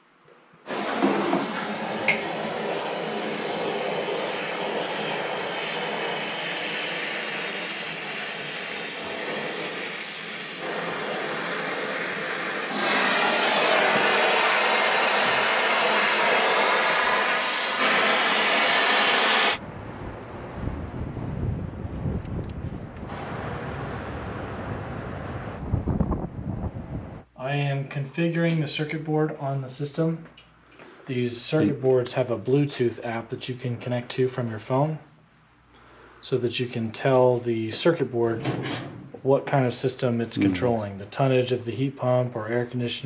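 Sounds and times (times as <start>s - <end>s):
motor rushing air: 0.7s - 19.6s, 21.0s - 27.2s.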